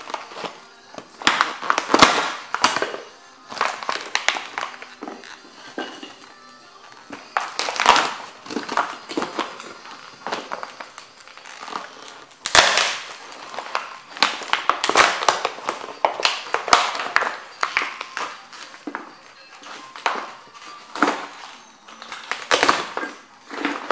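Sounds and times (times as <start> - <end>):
wood cracking and splintering: 0.0 - 5.8, 7.1 - 18.3, 22.0 - 23.9.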